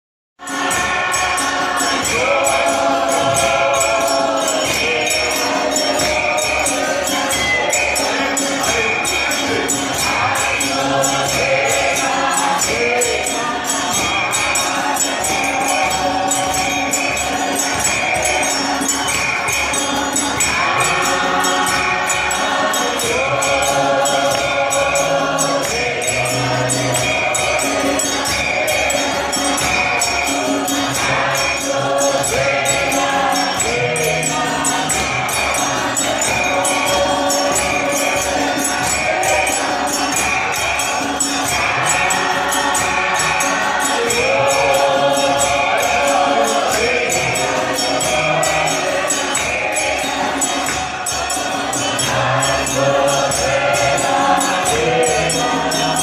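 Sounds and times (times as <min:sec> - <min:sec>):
men's choir singing in harmony: 0:00.4 - 0:56.0
steady percussive beat: 0:00.4 - 0:56.0.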